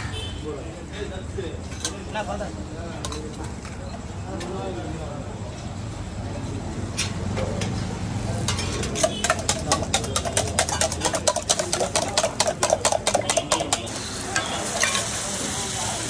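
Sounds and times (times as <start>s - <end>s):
spoon clinking in steel tumbler: 8.4s - 15.1s.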